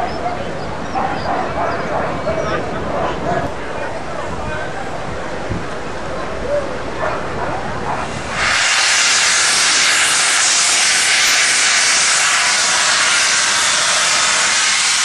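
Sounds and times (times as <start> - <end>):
steam venting hiss: 8.0 - 15.0.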